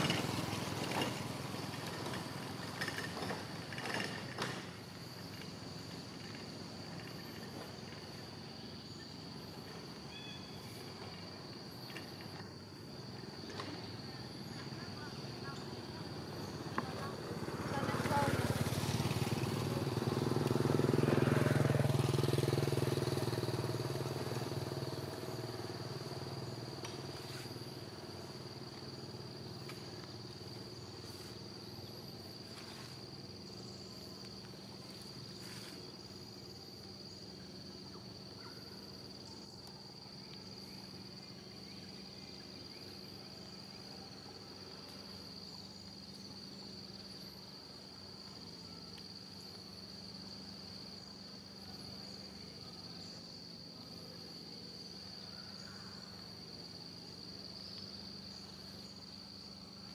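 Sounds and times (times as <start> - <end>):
insects droning: 0.0 - 59.9
passing vehicle engine: 16.1 - 27.9.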